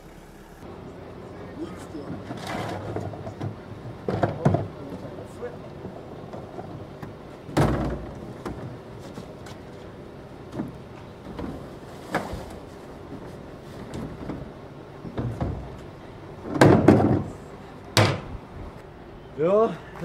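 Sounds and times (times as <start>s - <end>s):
rubbish sliding out: 1.8s - 18.2s.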